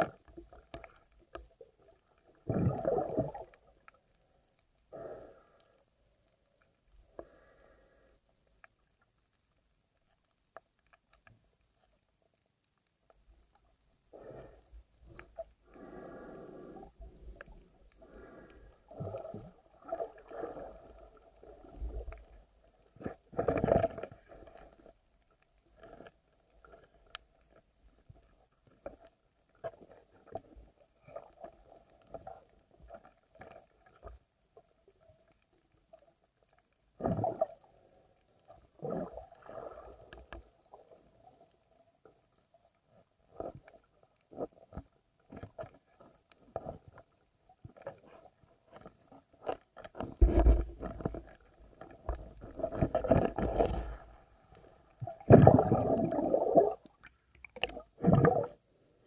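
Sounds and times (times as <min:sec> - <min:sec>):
water rushing underwater: 0:00.0 - 0:03.9, 0:14.2 - 0:24.9, 0:38.4 - 0:41.0, 0:49.4 - 0:58.9
muffled underwater knocks and bumps: 0:49.9 - 0:51.4.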